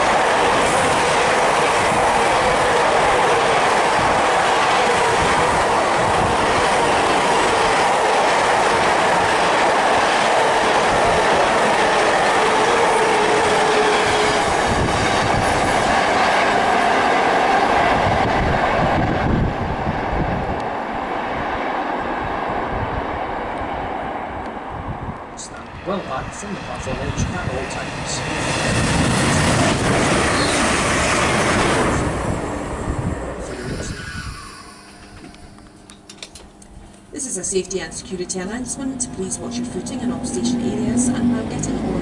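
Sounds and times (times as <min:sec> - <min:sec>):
faint wheel squeal: 0:33.5 - 0:35.6.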